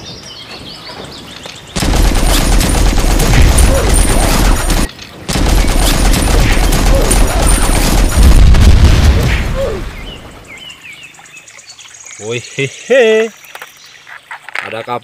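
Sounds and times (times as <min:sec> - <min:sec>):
heavy explosion booms: 0:01.8 - 0:10.2.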